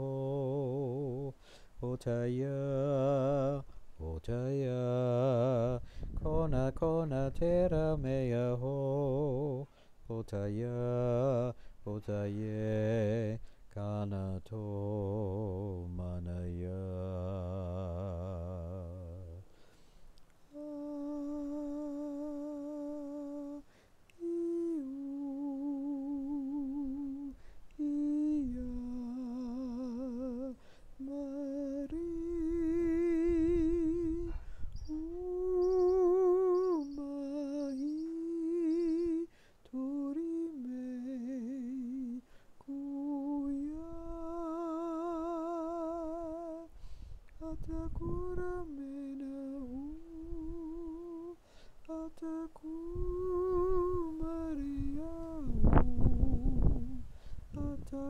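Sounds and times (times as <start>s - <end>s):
man humming chant: 0.0s - 19.4s, 20.5s - 46.7s
wind rumble on microphone: 4.0s - 9.5s, 31.6s - 36.9s, 43.2s - 51.3s, 52.2s - 58.0s.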